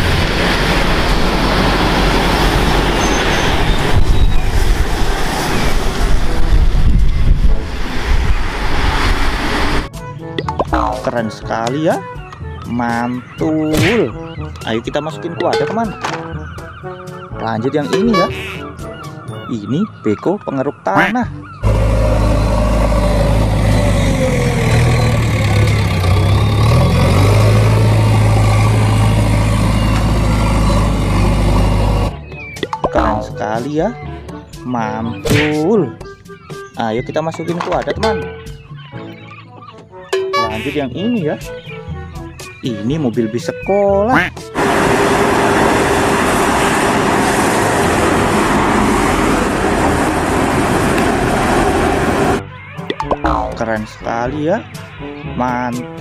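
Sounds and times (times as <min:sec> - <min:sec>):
vehicle rushing sound: 0:00.0 - 0:09.9, 0:21.6 - 0:32.3, 0:44.6 - 0:52.5
diesel engine droning: 0:00.0 - 0:10.1, 0:21.4 - 0:32.4, 0:44.5 - 0:52.6.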